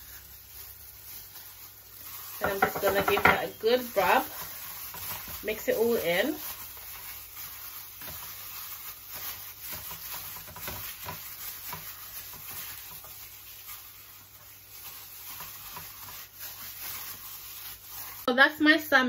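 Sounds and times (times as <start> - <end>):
gloved hands squishing fish: 0.0 - 18.3
taps and scrapes against bowl: 2.4 - 3.6.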